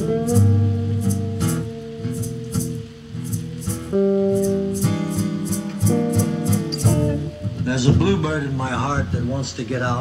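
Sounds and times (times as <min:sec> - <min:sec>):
lead guitar holding long notes: 0:00.0 - 0:09.4
rhythm guitar: 0:00.0 - 0:10.0.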